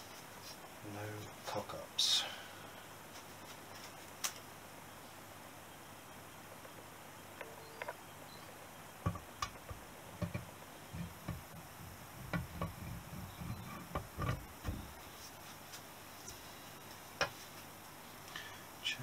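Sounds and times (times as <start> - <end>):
dull metal knocks and bumps: 9.0 - 15.0.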